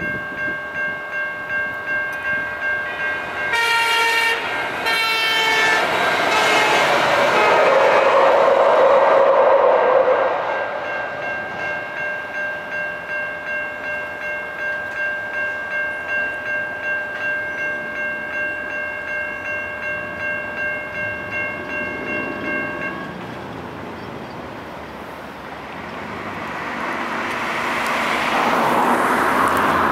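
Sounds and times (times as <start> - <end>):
electronic crossing bell ringing: 0.0 - 5.9, 10.5 - 23.4
light rail train passing: 0.0 - 29.9
car approaching: 25.5 - 29.9.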